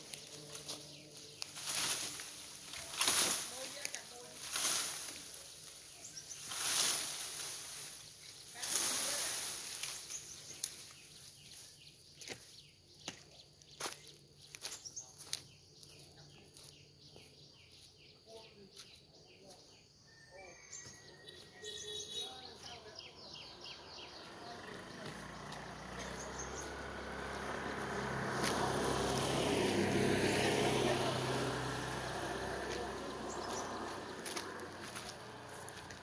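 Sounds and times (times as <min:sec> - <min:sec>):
vehicle passing: 0:00.0 - 0:10.8, 0:21.6 - 0:36.0
birds chirping: 0:00.0 - 0:36.0.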